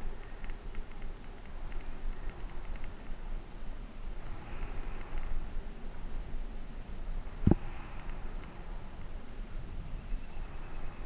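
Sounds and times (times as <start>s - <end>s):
bike tyres rolling on asphalt: 0.0s - 11.0s
wind buffeting a microphone: 0.0s - 11.0s.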